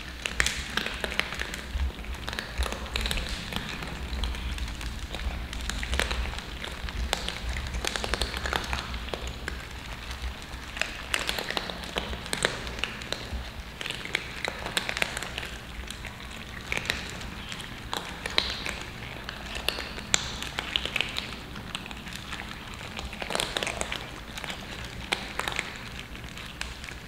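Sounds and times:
cats crunching dry kibble: 0.0s - 27.0s.

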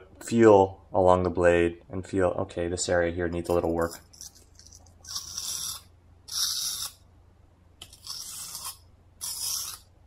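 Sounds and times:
knife scraping on whetstone: 3.5s - 7.0s, 7.8s - 9.9s.

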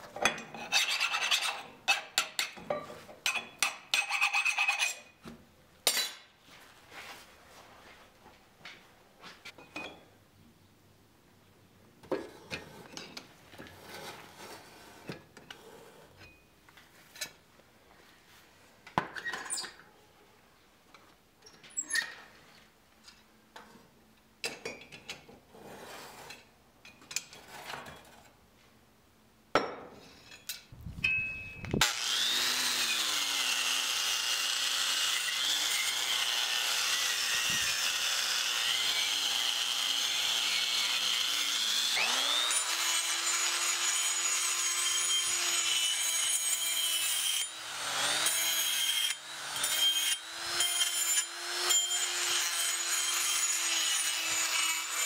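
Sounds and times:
angle grinder with wire brush: 0.3s - 2.6s, 3.3s - 5.2s, 31.6s - 55.0s.

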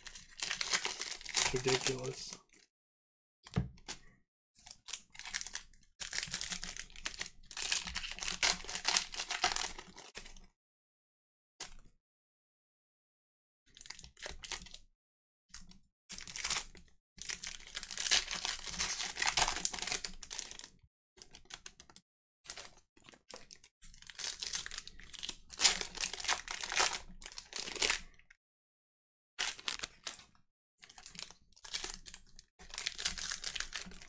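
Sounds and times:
foil wrappers tearing and crinkling: 0.0s - 2.3s, 4.8s - 10.1s, 16.2s - 20.7s, 24.0s - 28.0s, 29.4s - 30.2s, 30.8s - 34.0s.

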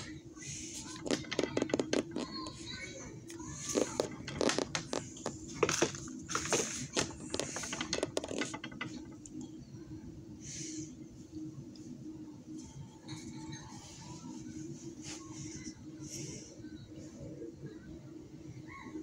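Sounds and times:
steady low hum: 0.0s - 18.8s.

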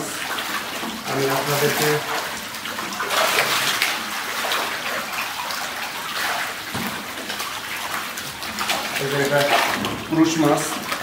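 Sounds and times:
water splashing in a tank: 0.0s - 11.0s.

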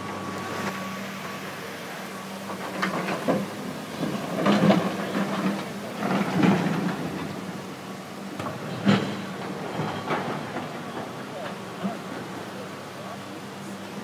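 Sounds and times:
excavator diesel engine droning: 0.0s - 14.0s
rock clanking and clattering: 2.5s - 12.4s.

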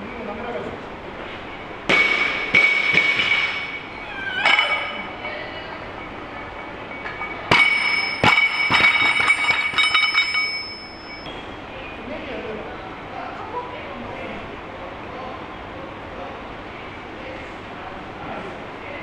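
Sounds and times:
barbell clanking: 1.9s - 5.4s, 6.9s - 11.2s
metallic ringing clink: 3.5s - 11.4s.

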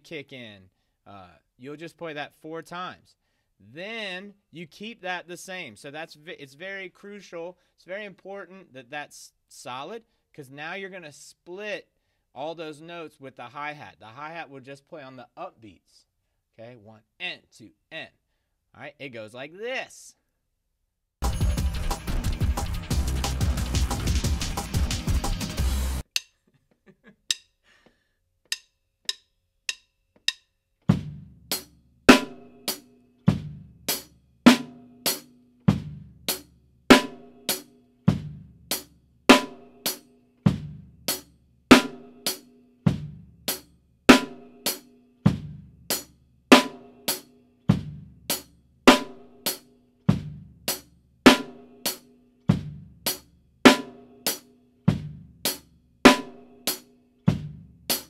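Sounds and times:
drum kit playing rock groove: 21.2s - 26.2s, 30.2s - 58.0s.

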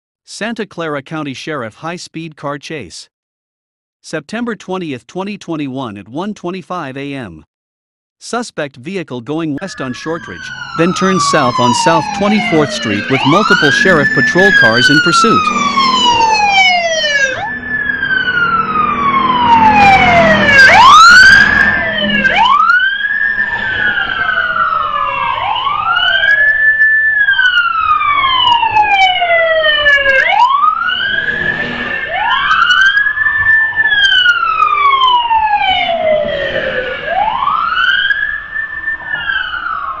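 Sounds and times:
police sirens wailing: 9.6s - 40.0s.

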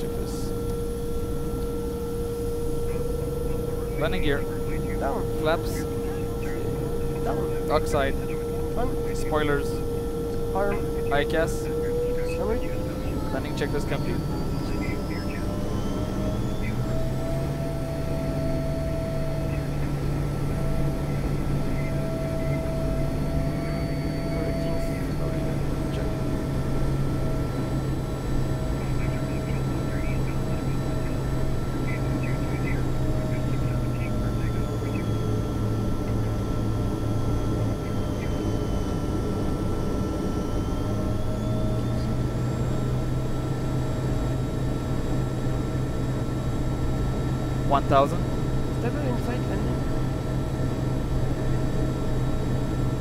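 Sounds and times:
constant high tones: 0.0s - 53.0s
low engine hum: 0.0s - 53.0s.

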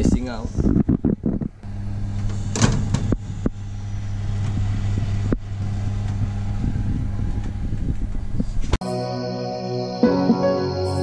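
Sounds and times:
oven fan humming: 0.0s - 8.8s.

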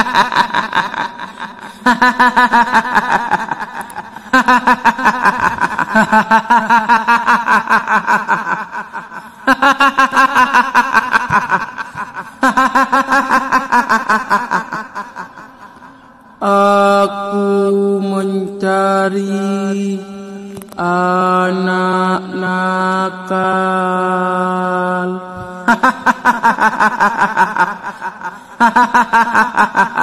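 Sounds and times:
woman's shrill cackling laugh: 0.0s - 15.8s.

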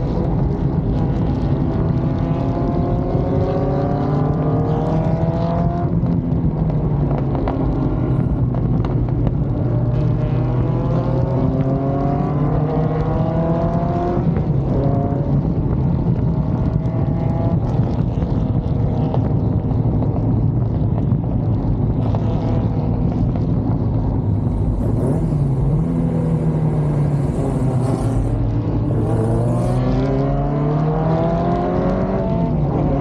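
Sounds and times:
racing car engine accelerating: 0.0s - 6.1s, 24.3s - 33.0s.

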